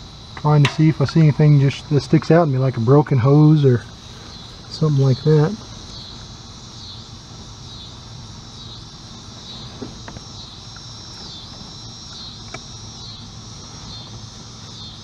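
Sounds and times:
low steady hum: 0.0 - 15.0
pulsing insect chorus: 0.0 - 15.0.

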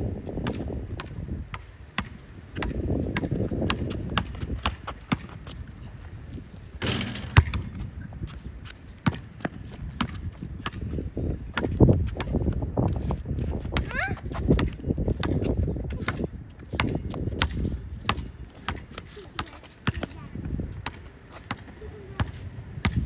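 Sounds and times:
basketball dribbling on hard court: 2.0 - 5.6, 9.0 - 10.9
footsteps on hard court: 2.0 - 20.2.

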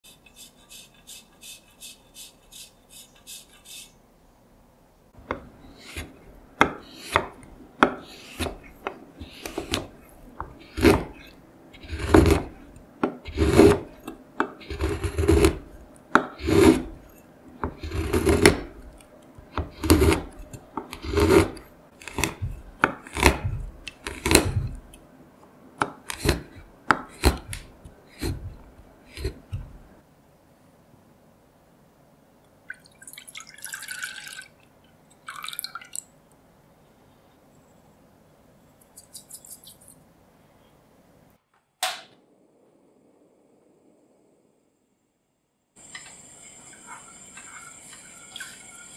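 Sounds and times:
knife chopping on wooden board: 5.2 - 11.2, 11.8 - 16.9, 17.6 - 18.8, 19.4 - 24.9, 25.8 - 29.9
grater shaving chocolate: 8.0 - 15.7, 16.3 - 17.0, 17.7 - 18.8, 19.5 - 24.9, 26.0 - 26.5.

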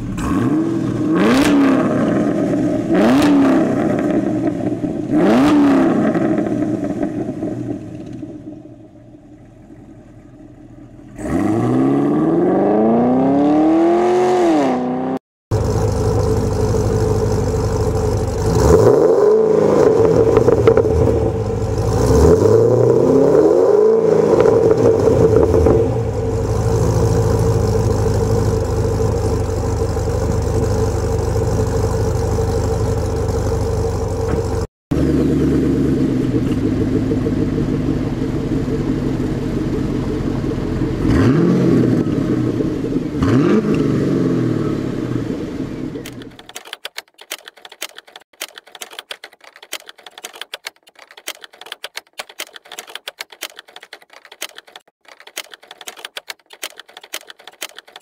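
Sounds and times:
car engine revving: 0.0 - 8.7, 10.6 - 46.4
car engine idling: 6.0 - 11.2, 15.5 - 18.9, 19.7 - 22.3, 24.6 - 43.4.

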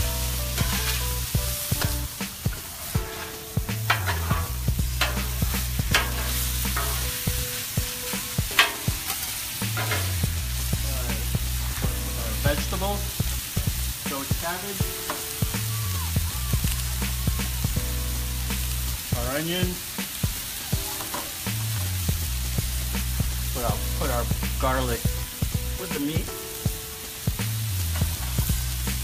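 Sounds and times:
meat sizzling on a griddle: 0.0 - 29.0
metal spatulas scraping on steel: 2.5 - 7.4, 8.5 - 10.2.

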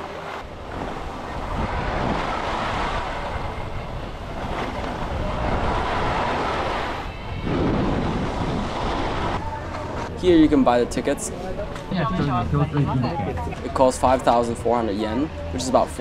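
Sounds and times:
wind buffeting microphone: 7.1 - 9.4.

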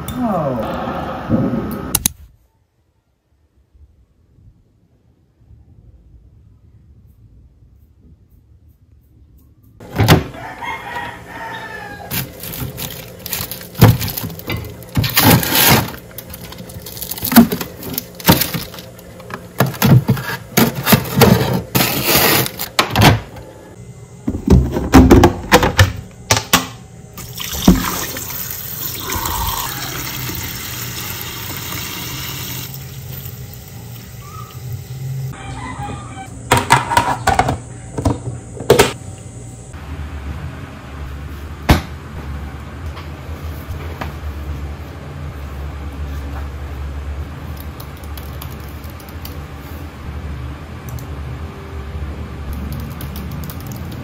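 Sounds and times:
freezer opening: 12.1 - 23.4
chicken calling: 29.0 - 30.3, 34.1 - 36.5.

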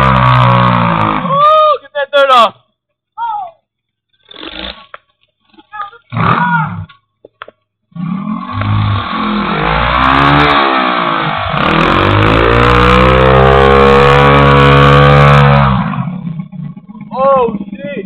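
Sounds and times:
dirt bike engine revving: 0.0 - 1.4, 7.9 - 18.0.

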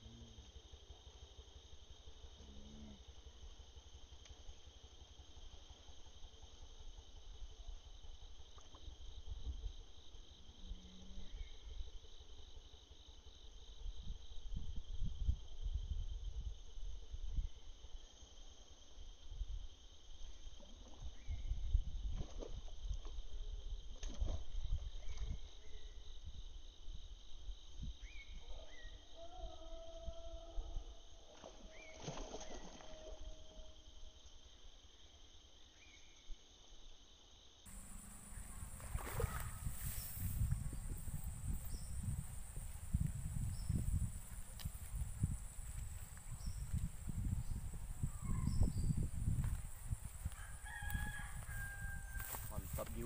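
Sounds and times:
insects chirring: 0.0 - 53.0
low microphone rumbles: 37.7 - 53.0.

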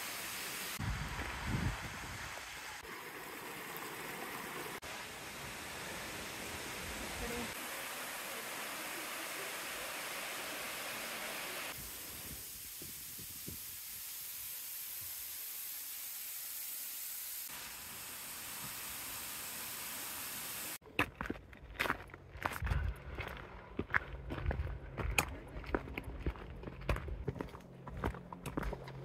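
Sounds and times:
waterfall rushing: 0.0 - 12.2
footsteps on gravel: 20.8 - 29.0.

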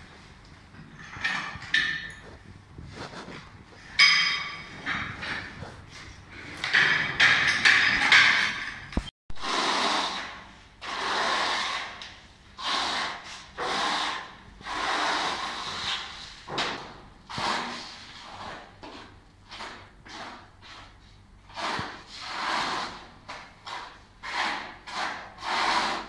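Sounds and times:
trowel scraping adhesive on concrete: 9.4 - 16.3, 17.3 - 26.0.

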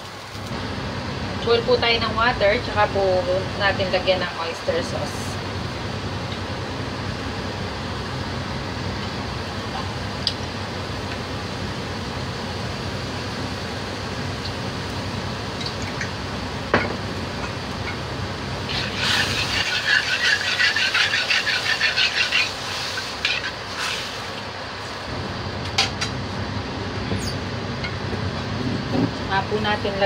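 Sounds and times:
metal ladle scraping a wok: 18.7 - 24.3.

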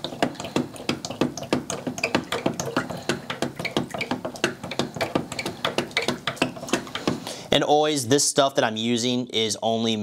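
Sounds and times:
stirrer knocking against plastic pitcher: 0.0 - 7.3.

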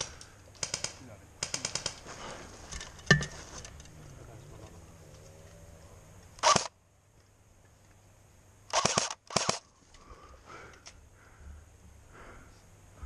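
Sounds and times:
airsoft gunfire bursts: 0.6 - 2.0, 8.7 - 9.6.

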